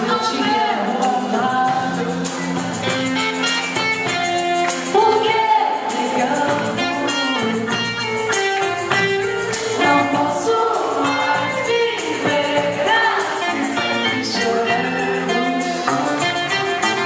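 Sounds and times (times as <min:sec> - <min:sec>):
women singing: 0:00.0 - 0:02.4, 0:04.8 - 0:08.3, 0:09.6 - 0:17.0
guitar: 0:00.0 - 0:17.0
tambourine shaken: 0:00.2 - 0:17.0.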